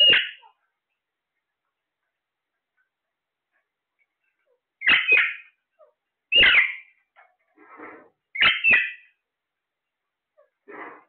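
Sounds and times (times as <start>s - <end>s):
parakeets calling: 0.0s - 0.6s, 4.8s - 7.0s, 8.3s - 9.2s.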